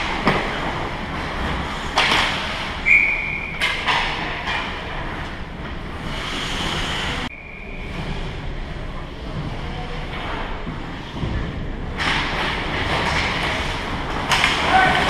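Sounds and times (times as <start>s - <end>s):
sticks and puck clattering: 0.0s - 6.1s, 9.4s - 15.0s
referee whistle blast: 2.8s - 3.6s.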